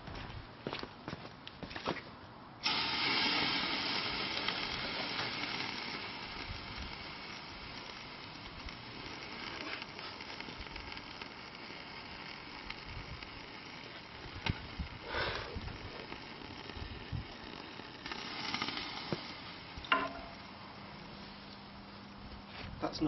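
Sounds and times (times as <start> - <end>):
loud hissing in microwave: 2.6 - 17.3, 17.9 - 19.8.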